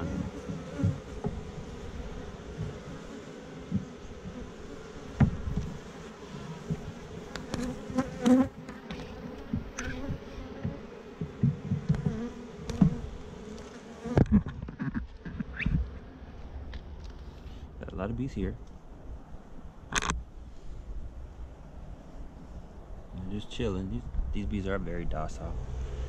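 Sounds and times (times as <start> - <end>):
bees humming: 0.0 - 14.2.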